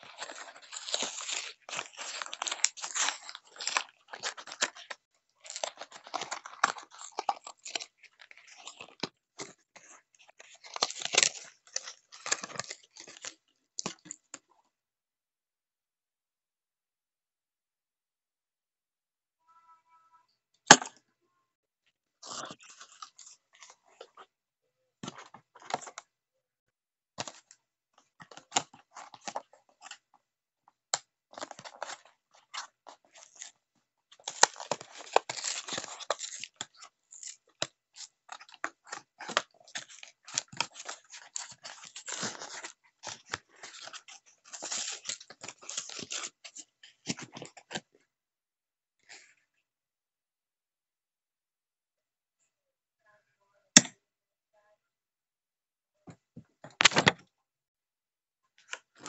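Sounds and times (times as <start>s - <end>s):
packaging crinkling and tearing: 0.0s - 14.2s, 31.3s - 47.8s.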